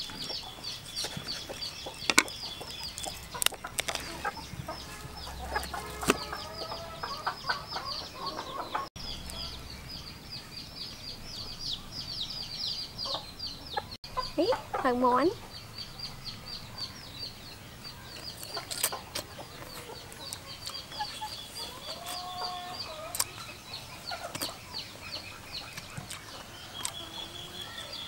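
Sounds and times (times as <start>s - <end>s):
hen clucking: 0.0s - 9.7s, 13.0s - 15.6s, 18.0s - 28.0s
chicks peeping: 0.0s - 28.0s.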